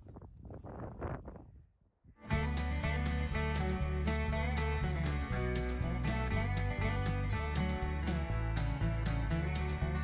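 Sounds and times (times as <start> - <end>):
wind buffeting microphone: 0.0 - 1.8.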